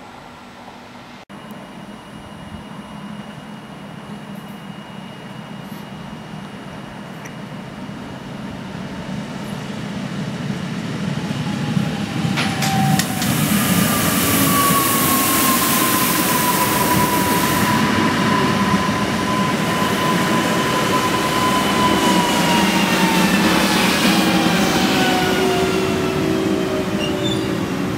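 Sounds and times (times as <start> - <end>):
electric train passing: 0.0 - 27.9
train motor whine: 11.4 - 27.9.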